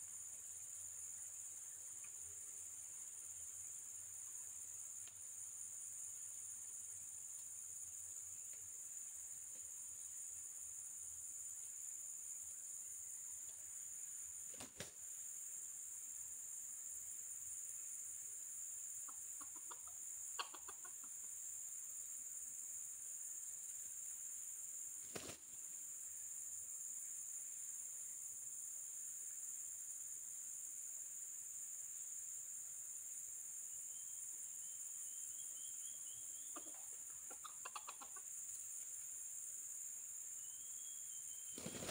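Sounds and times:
high-pitched insect drone: 15.2 - 41.9
rooster clucking: 19.4 - 21.1, 36.6 - 38.2.

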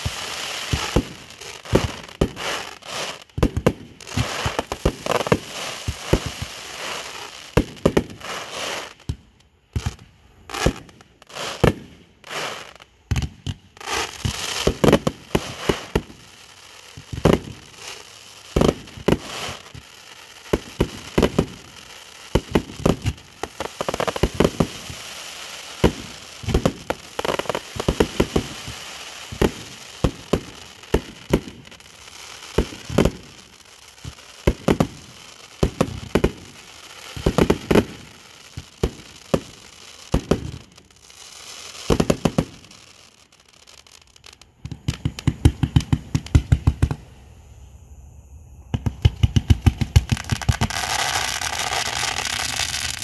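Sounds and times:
loud sharp cracks and pops: 44.2 - 47.0, 48.7 - 50.8.

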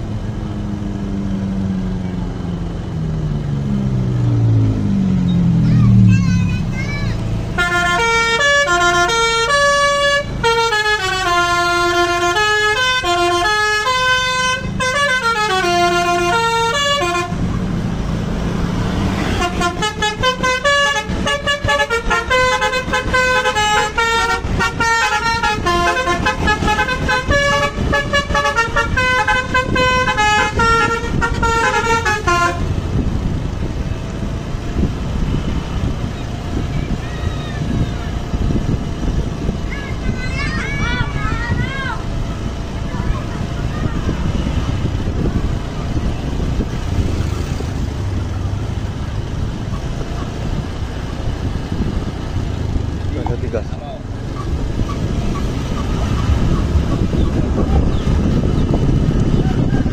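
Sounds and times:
passing vehicle engine and road noise: 0.0 - 59.9
multi-tone air horn tune: 7.6 - 17.4, 19.2 - 32.7.

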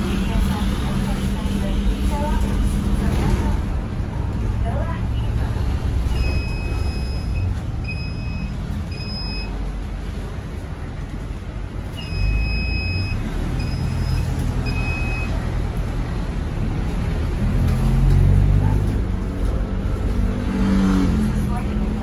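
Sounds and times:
diesel bus engine: 0.0 - 22.0
road rumble: 0.0 - 22.0
high electronic beep: 6.1 - 9.5, 12.0 - 15.4.

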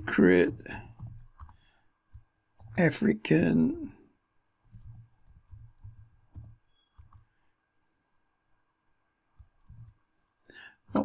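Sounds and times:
faint keyboard keystrokes: 4.7 - 7.3.

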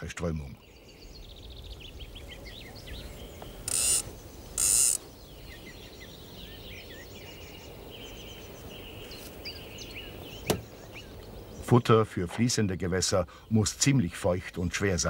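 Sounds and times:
birds chirping faintly: 0.0 - 15.0
fishing reel whirring: 3.6 - 5.0.

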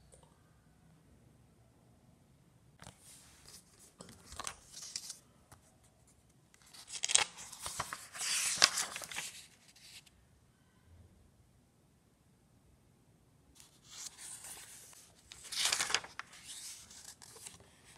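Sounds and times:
paper pages rustling: 2.8 - 5.2, 6.6 - 10.1, 13.6 - 17.9.

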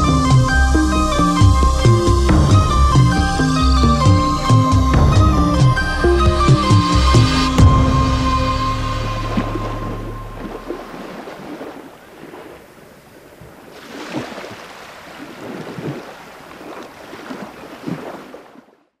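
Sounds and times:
water lapping at shore: 6.3 - 19.0.

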